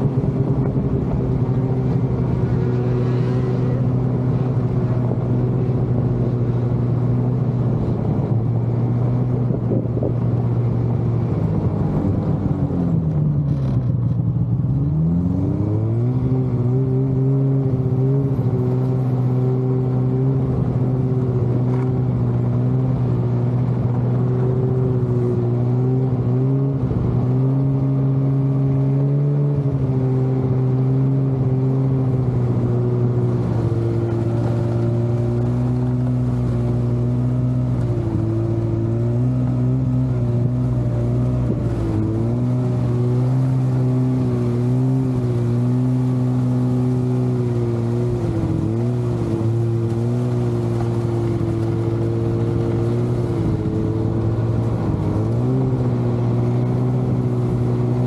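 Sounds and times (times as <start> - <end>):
snowmobile engine running: 13.6 - 58.0.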